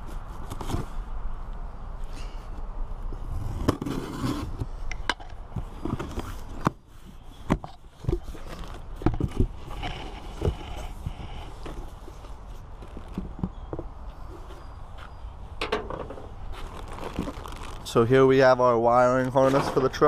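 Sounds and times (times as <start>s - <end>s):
cardboard and tape crackling: 8.0s - 13.5s, 16.3s - 18.2s.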